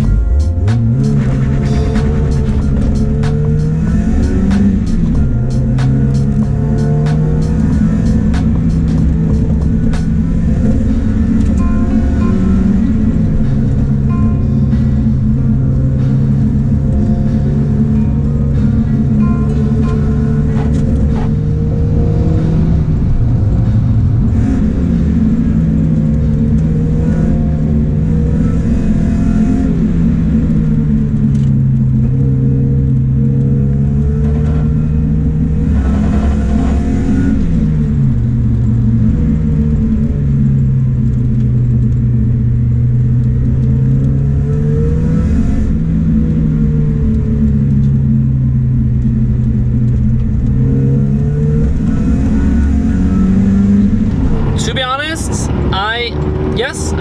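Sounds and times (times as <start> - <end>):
car engine revving: 0.0 - 57.0
gear changes: 0.0 - 57.0.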